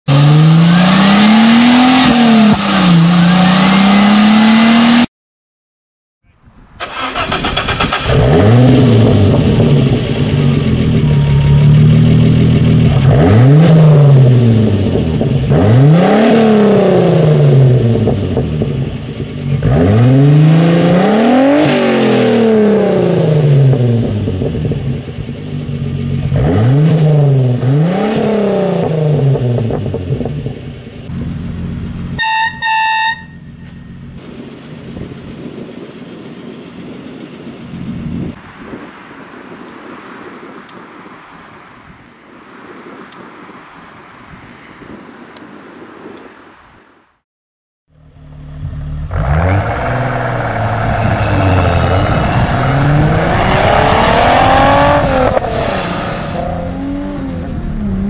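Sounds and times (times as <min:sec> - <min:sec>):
car engine revving: 0:00.1 - 0:05.1, 0:06.8 - 0:32.2, 0:48.0 - 0:58.0
car engine under load: 0:06.6 - 0:41.1, 0:47.9 - 0:58.0.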